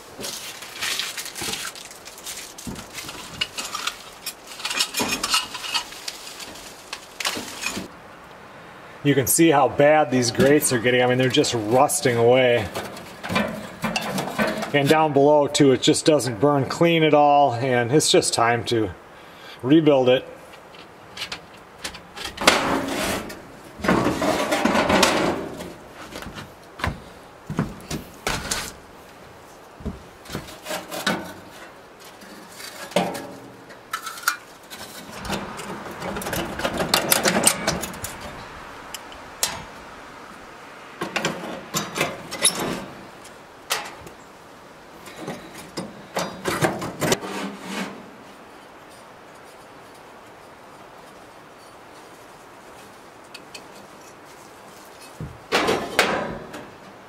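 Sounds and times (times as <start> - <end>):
metal parts scraping: 0.3 - 7.9, 20.7 - 25.8, 30.4 - 38.4.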